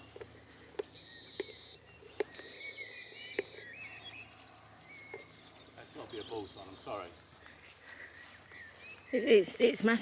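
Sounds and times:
faint birdsong: 0.0 - 10.0.

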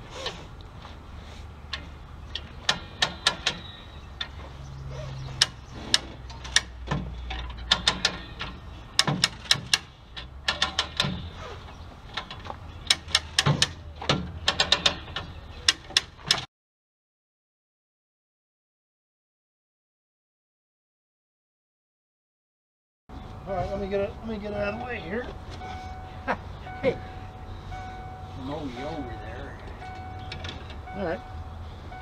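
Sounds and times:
winch ratcheting clicks: 1.7 - 4.4, 5.3 - 11.3, 12.1 - 16.5.

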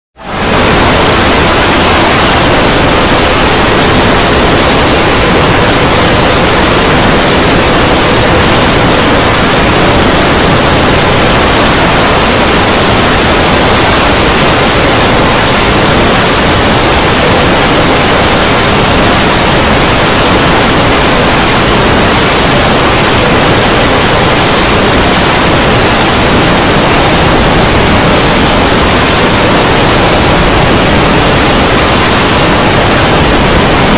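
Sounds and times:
layered soundtracks blurring together: 0.2 - 33.9.

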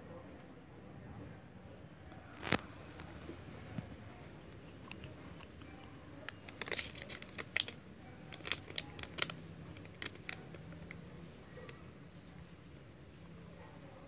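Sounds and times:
paper crinkling: 4.6 - 11.8.

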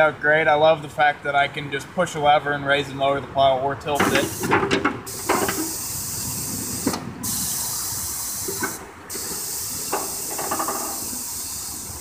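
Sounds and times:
compressed air hissing: 4.0 - 12.0.

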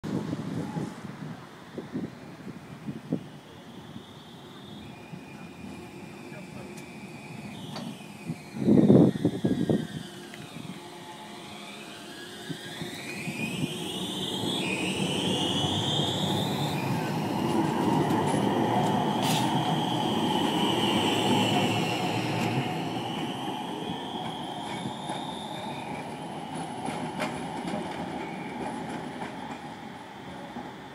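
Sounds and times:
tram traction whine: 0.0 - 30.9
wheel on rail rumble: 0.1 - 30.9
high wheel squeal: 3.7 - 29.1.

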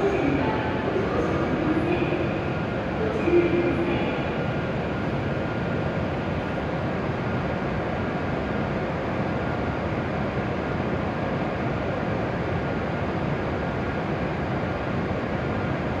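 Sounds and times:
stopped train humming: 0.0 - 11.9
station ventilation: 0.0 - 16.0.

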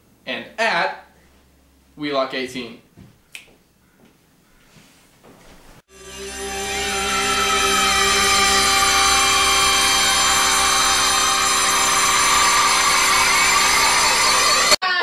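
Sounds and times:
siren-like electronic tone: 5.9 - 14.8.

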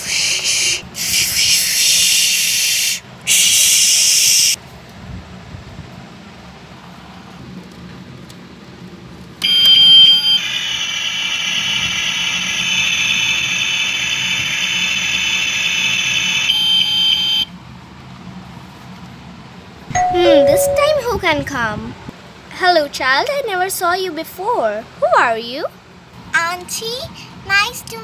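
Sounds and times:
toy electronic beep: 9.4 - 10.4, 16.5 - 17.5, 20.0 - 21.1.

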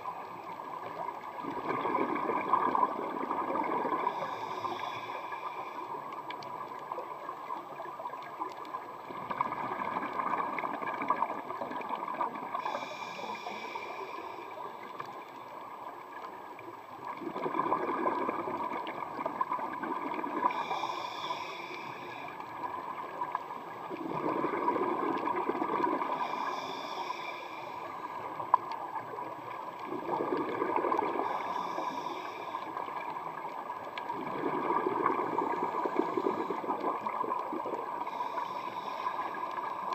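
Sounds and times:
regulator breathing hiss: 4.0 - 6.1, 12.6 - 14.9, 20.4 - 22.4, 26.0 - 28.4, 31.1 - 33.0, 37.9 - 39.9.

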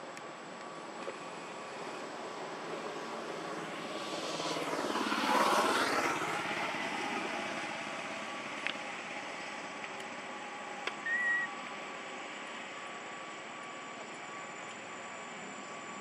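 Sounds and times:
engine passing by: 1.3 - 9.7.

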